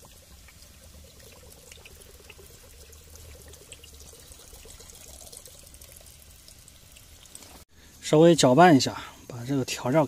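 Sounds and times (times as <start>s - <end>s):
beer pouring and splashing: 0.0s - 7.6s.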